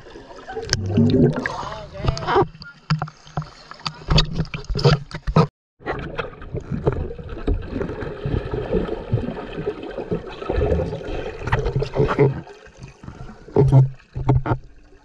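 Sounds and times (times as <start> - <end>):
muffled underwater bubbling: 0.5 - 2.5.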